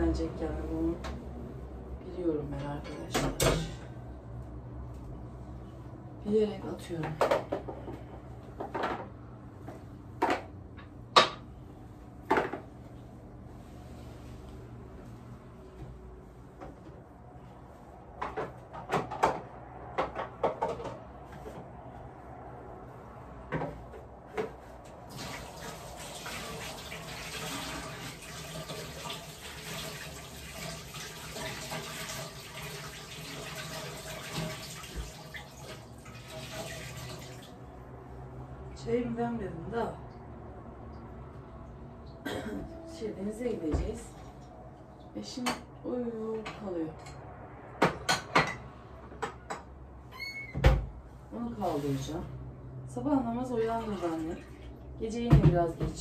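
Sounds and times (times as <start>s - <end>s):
water running into a sink: 25.1s - 37.6s.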